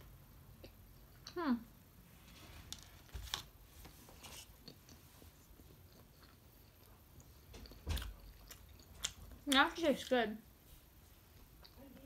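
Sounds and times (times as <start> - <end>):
faint chewing: 0.3 - 1.4, 4.2 - 10.2, 11.2 - 12.0.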